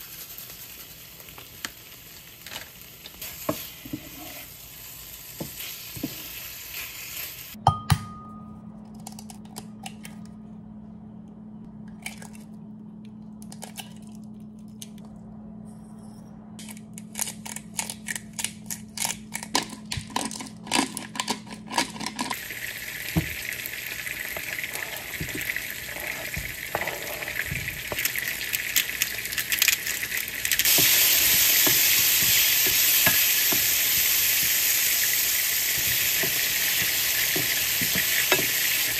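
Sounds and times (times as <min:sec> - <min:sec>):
frying pan sizzling: 0:00.0 - 0:07.6, 0:22.3 - 0:38.9
steady low hum: 0:07.6 - 0:38.5.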